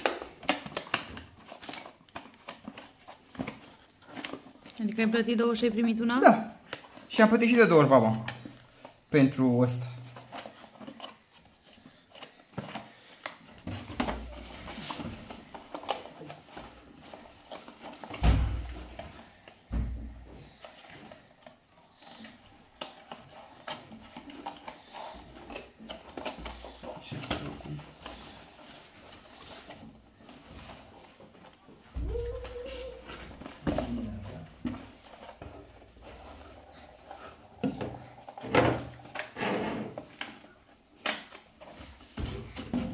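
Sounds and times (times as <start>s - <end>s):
cardboard rustling and scraping: 10.0s - 19.7s, 20.4s - 42.9s.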